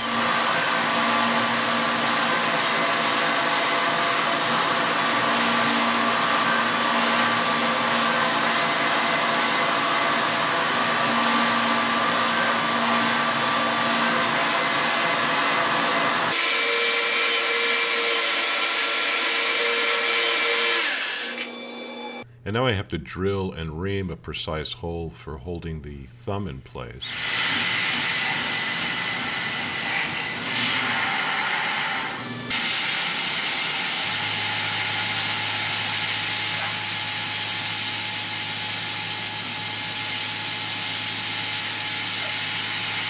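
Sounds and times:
mill spindle whine: 0.0 - 22.2.

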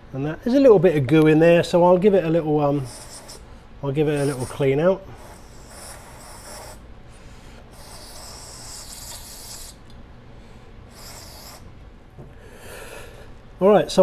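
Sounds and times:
aerosol spray hissing: 4.1 - 4.6, 5.2 - 6.8, 7.8 - 9.8, 10.9 - 11.7.

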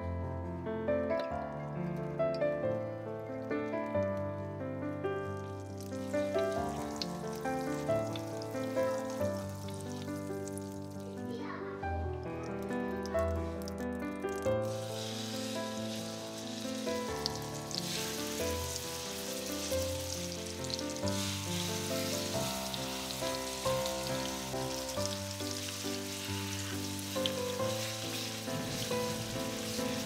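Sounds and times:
background music: 0.0 - 30.0
chicken sizzling in a frying pan: 5.2 - 11.6, 14.4 - 30.0.

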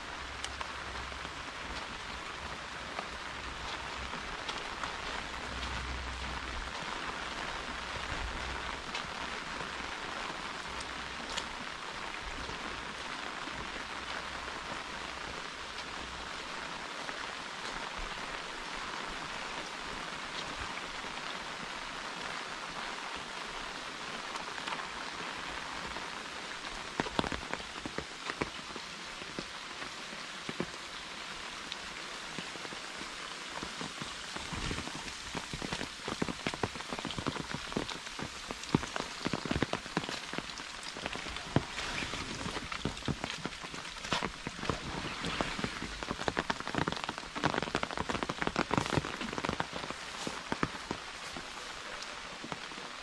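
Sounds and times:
heavy rain on umbrella: 0.0 - 53.0.

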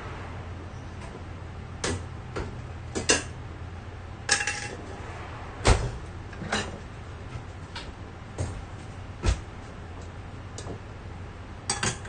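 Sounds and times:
steady low hum: 0.0 - 12.0
heavy thump: 5.1 - 6.4.

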